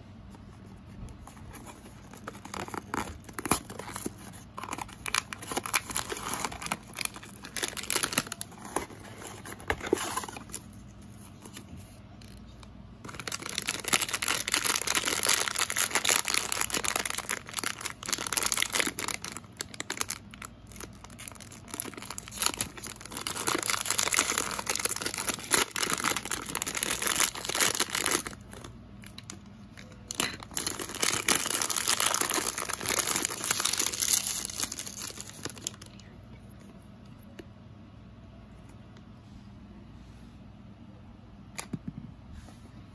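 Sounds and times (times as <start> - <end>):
plastic bag crinkling and tearing: 1.5 - 10.7, 13.0 - 35.9.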